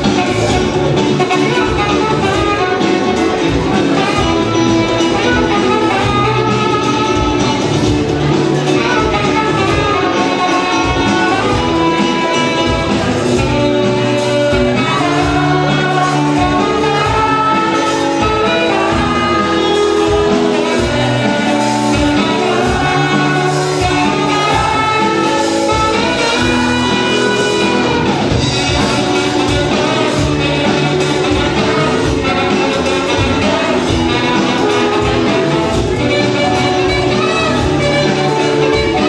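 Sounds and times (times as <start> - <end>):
live band playing: 0.0 - 39.0
person singing: 8.6 - 39.0.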